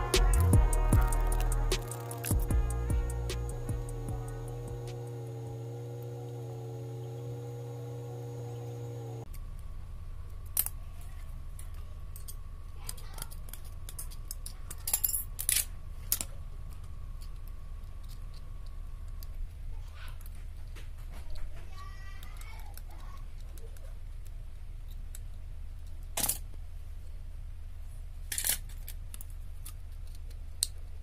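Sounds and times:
held musical tone: 0:00.0 - 0:09.3
low steady hum: 0:00.0 - 0:31.0
small metal parts clicking: 0:01.2 - 0:02.5, 0:10.3 - 0:19.5, 0:28.3 - 0:30.9.

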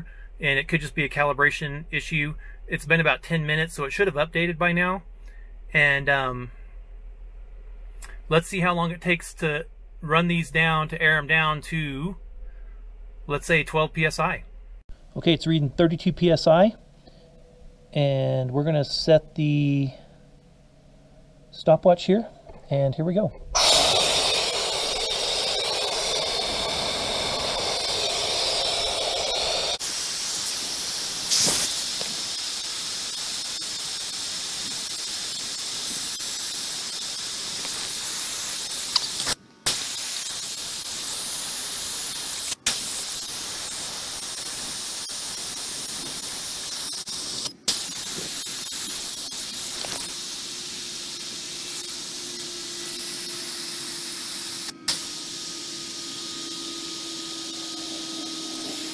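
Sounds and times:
air hissing out of tires: 0:23.6 - 0:58.9.

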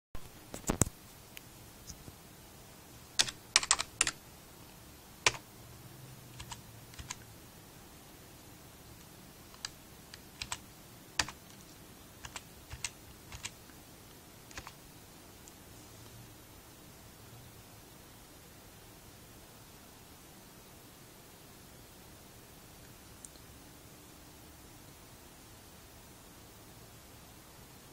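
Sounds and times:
keyboard keystroke clicks: 0:03.2 - 0:04.2, 0:06.4 - 0:07.2, 0:09.5 - 0:10.6, 0:12.2 - 0:13.5.

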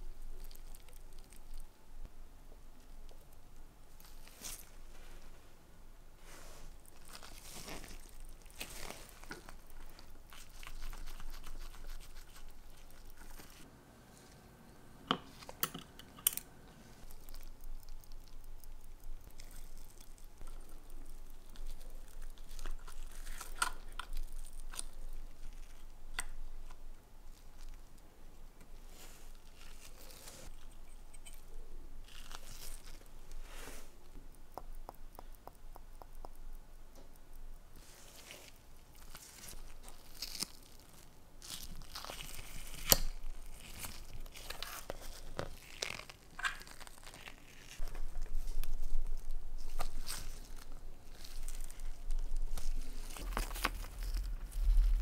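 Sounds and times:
gloved fingers rustling: 0:06.2 - 0:13.7, 0:37.8 - 0:55.0.

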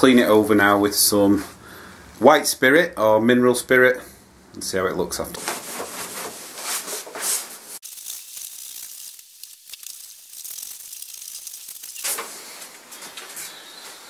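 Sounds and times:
cloth rag rubbing wood: 0:05.4 - 0:07.8.

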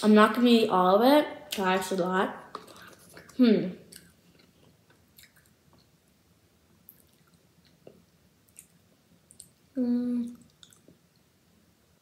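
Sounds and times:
girl humming: 0:09.8 - 0:10.4.

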